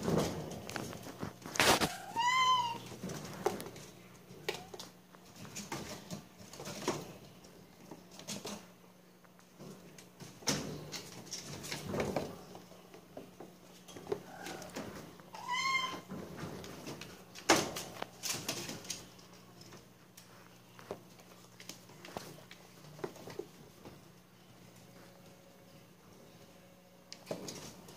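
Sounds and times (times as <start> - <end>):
kittens moving on plastic tray: 0.0 - 25.4
kitten meowing: 1.9 - 2.8.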